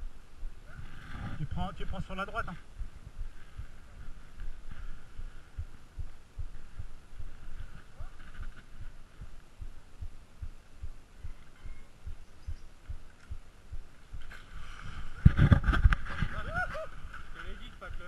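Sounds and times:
faint background hiss: 0.0s - 18.0s
thumping on microphone: 15.2s - 16.3s.

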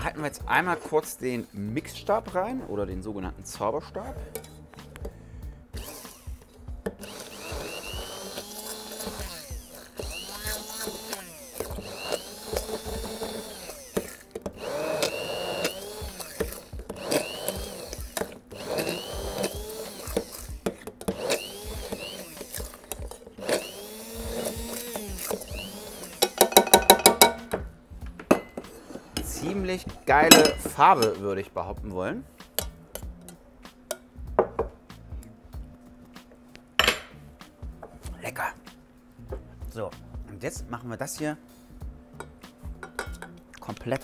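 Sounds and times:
stick blender motor whining: 5.8s - 26.6s.

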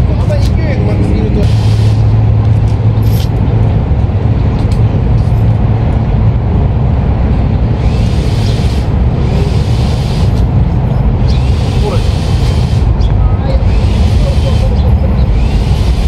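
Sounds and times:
rough rumble: 0.0s - 16.0s
motor humming: 7.7s - 10.5s, 11.2s - 16.0s.

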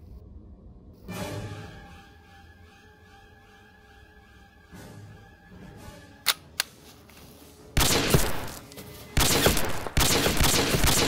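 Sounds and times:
single gunshots: 7.8s - 8.6s, 9.2s - 11.0s
rapid automatic gunfire: 9.2s - 11.0s.

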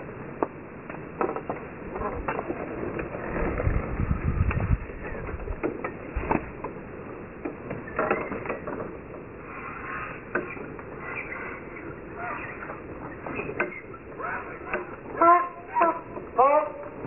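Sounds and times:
low rumble: 2.9s - 5.6s.

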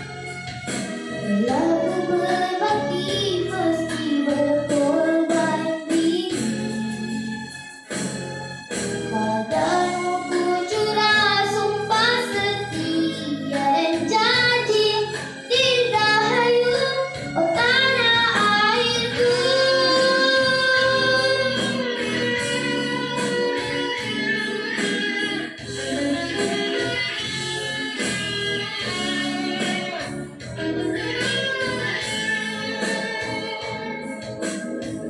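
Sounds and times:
instrumental backing music: 0.0s - 35.0s
girl singing into microphone: 1.2s - 7.5s, 9.1s - 27.4s.

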